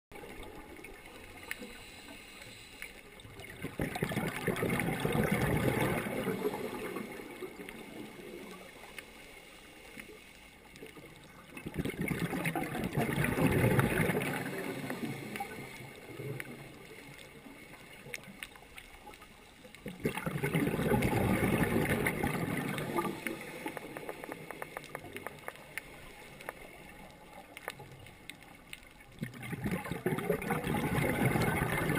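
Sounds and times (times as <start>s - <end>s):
underwater exhale bubbles: 0.2s - 9.0s, 10.8s - 18.2s, 19.8s - 27.9s, 29.2s - 31.9s
hiss with crackling clicks: 0.2s - 31.9s.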